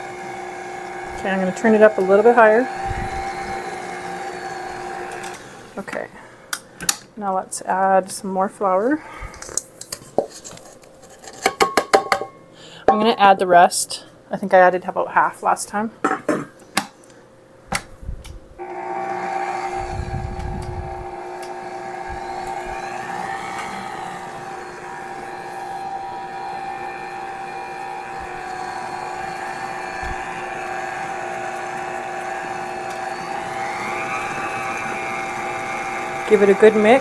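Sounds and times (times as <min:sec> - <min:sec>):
stand mixer motor whining: 0:00.0 - 0:05.8, 0:18.6 - 0:37.0.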